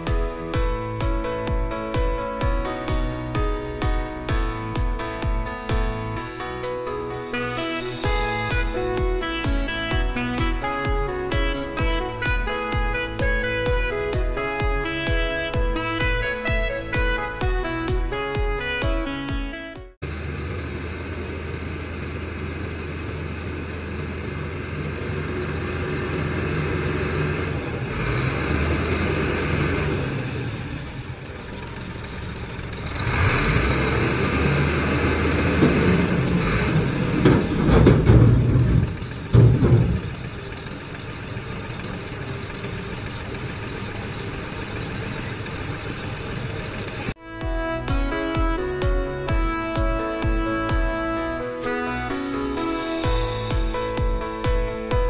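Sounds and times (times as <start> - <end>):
truck diesel engine running: 20.0 - 47.2.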